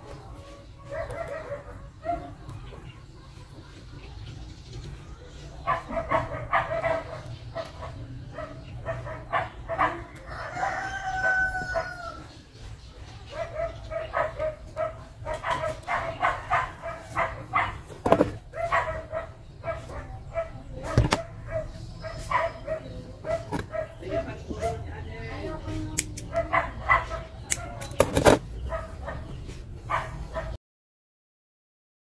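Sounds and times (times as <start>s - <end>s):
dog barking: 0.8s - 3.7s, 5.6s - 12.2s, 13.2s - 24.9s, 26.3s - 28.0s, 28.6s - 30.6s
rooster crowing: 10.2s - 12.4s.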